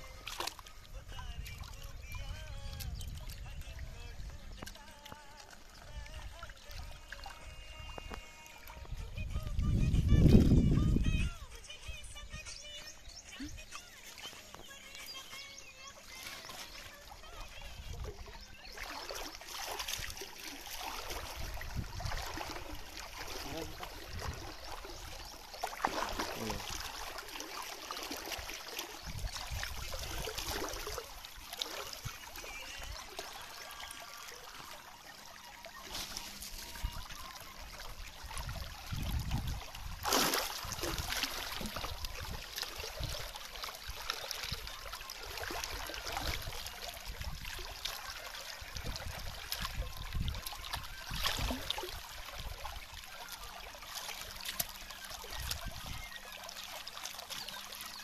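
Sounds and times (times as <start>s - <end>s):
river water trickling: 0.0s - 58.0s
loud water splash: 25.6s - 32.0s, 38.6s - 44.2s.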